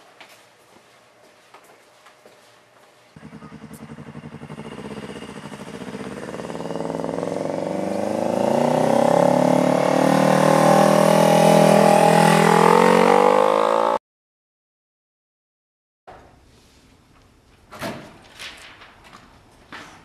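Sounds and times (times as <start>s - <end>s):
motorcycle engine approaching: 3.2s - 14.0s.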